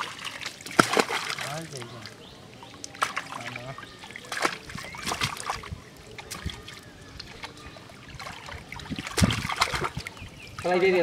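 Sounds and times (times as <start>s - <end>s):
fish thrashing and splashing: 0.0s - 10.7s
hands scooping through water: 2.8s - 10.2s.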